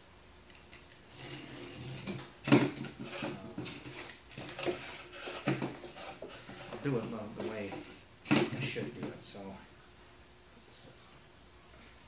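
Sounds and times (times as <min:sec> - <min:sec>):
cardboard rustling and scraping: 0:01.2 - 0:09.2.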